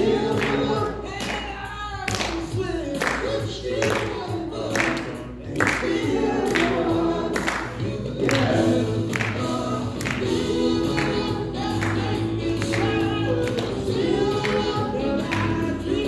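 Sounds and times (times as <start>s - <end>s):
woman singing into microphone: 10.4s - 16.0s.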